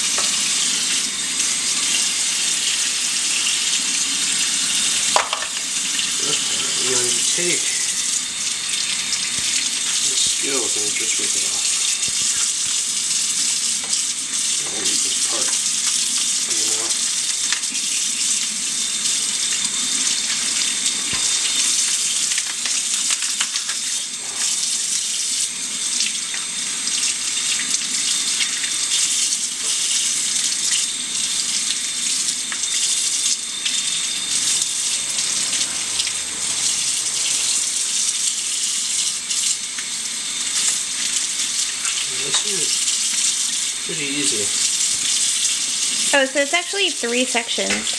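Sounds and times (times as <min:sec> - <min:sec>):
faucet running into sink: 0:00.0 - 0:47.9.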